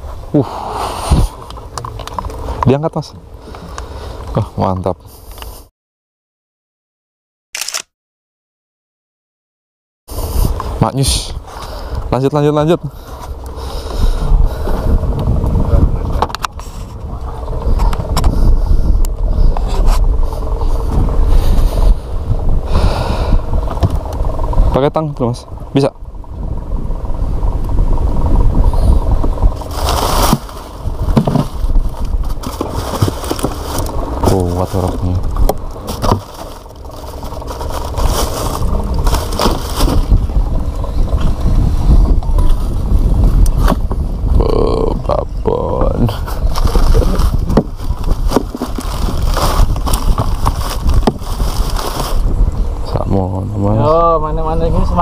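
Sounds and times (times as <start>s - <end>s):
boat engine low rumble: 0.0s - 5.7s, 10.1s - 55.0s
gear knocking and scraping: 27.4s - 44.1s, 45.7s - 52.6s.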